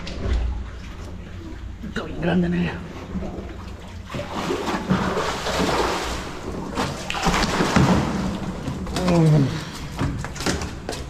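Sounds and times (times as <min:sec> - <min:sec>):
fish splashing water: 0:03.3 - 0:11.0.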